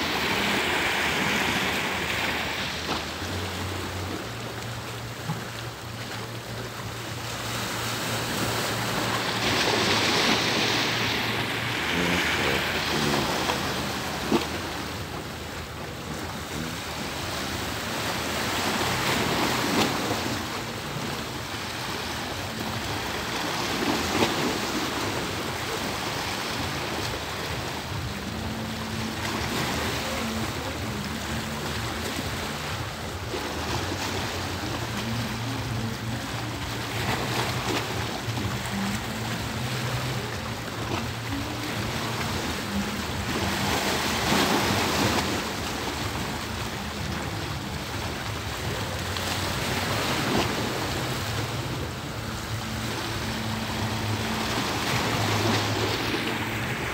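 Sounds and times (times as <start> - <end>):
sea waves washing and lapping: 0.0 - 56.9.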